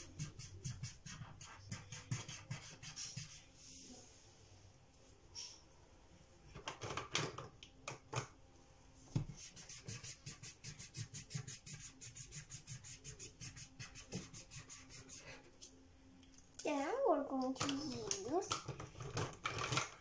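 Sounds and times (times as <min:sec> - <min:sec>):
marker scribbling on paper: 0:00.0 - 0:03.5, 0:09.2 - 0:15.6.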